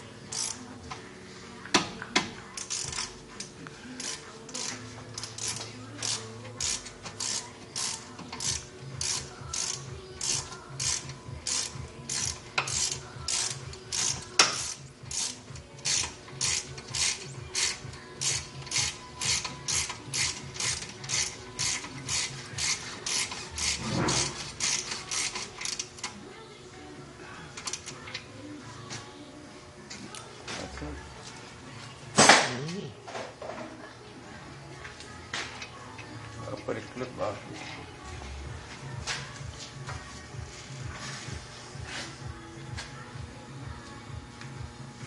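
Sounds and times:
ratchet wrench clicking: 0.3 - 0.6, 2.6 - 3.2, 4.0 - 26.1, 27.6 - 28.2.

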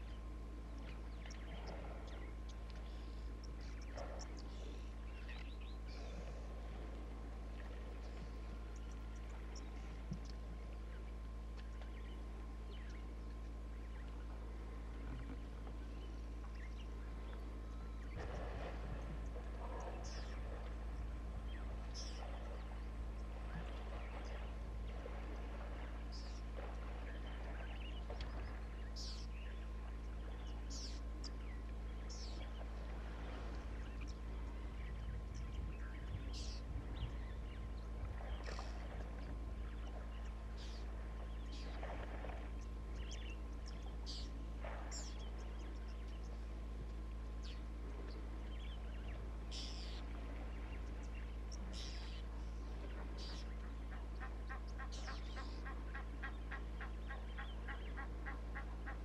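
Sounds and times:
steady low hum: 0.0 - 59.0
steady low rumble: 0.0 - 59.0
water sloshing and splashing: 17.2 - 30.7, 31.3 - 35.0, 37.5 - 59.0
bird chirps: 26.1 - 32.7, 33.8 - 38.9, 42.6 - 46.4, 47.4 - 59.0.

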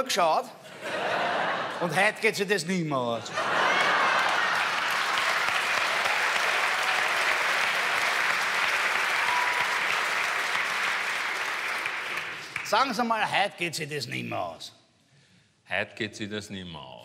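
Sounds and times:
audience applauding: 3.4 - 13.1.

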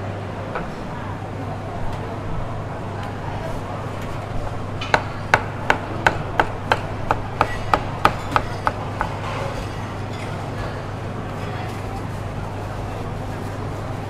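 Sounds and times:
steady low hum: 0.0 - 14.0
cleaver chopping on wooden board: 4.8 - 9.2.

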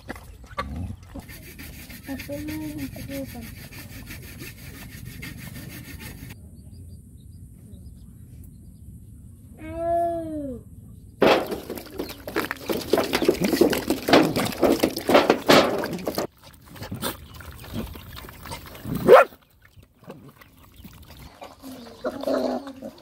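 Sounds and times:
puppies eating wet food: 0.0 - 1.2, 12.0 - 23.0.

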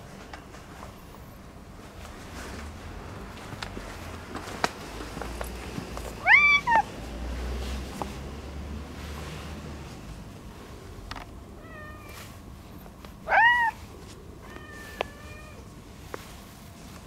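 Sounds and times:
cat meowing: 6.2 - 6.9, 11.6 - 12.3, 13.2 - 13.8, 14.4 - 15.7.

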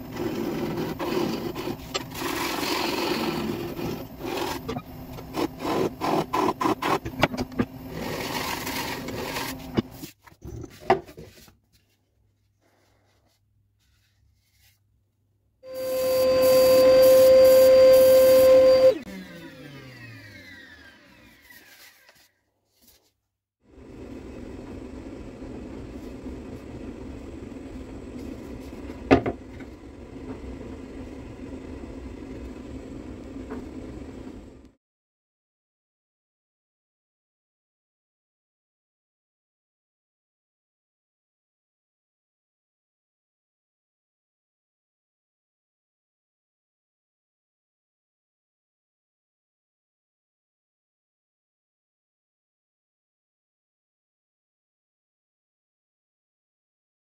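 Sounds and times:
gouge scraping wood: 0.0 - 10.2
workshop machine hum: 0.0 - 11.1, 15.7 - 22.3, 23.7 - 34.8
lathe motor hum: 15.8 - 22.0.

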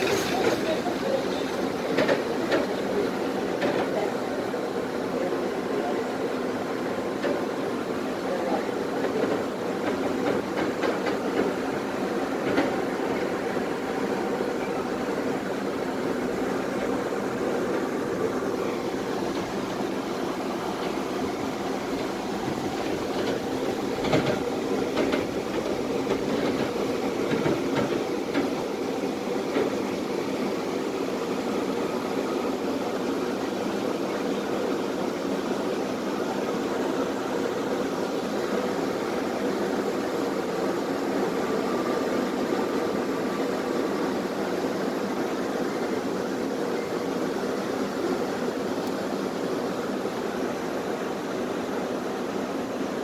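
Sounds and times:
wheels knocking over rail joints: 0.0 - 2.8
tram rumbling on track: 0.0 - 53.0.

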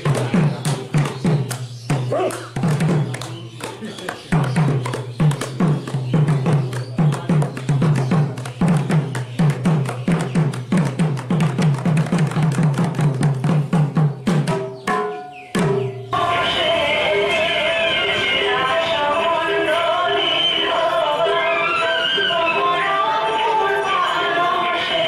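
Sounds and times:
barrel drums played by hand: 0.0 - 16.2.

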